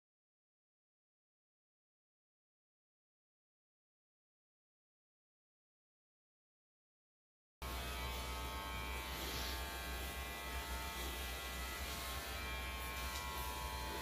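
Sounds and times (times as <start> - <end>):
electric hair clipper buzzing: 7.6 - 14.0.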